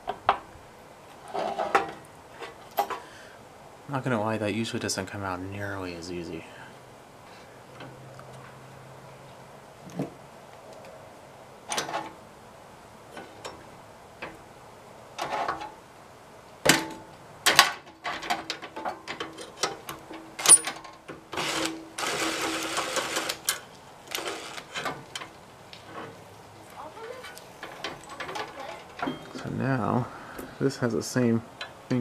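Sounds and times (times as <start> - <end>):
metal tools clinking and knocking: 16.8 - 21.0, 27.1 - 29.5.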